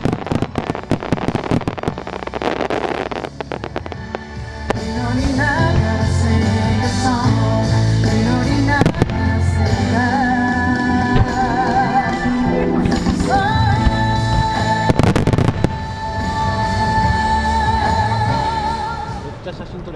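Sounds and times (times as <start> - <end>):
fireworks bangs: 0.0 - 7.1, 10.7 - 16.4
song with singer: 3.7 - 19.4.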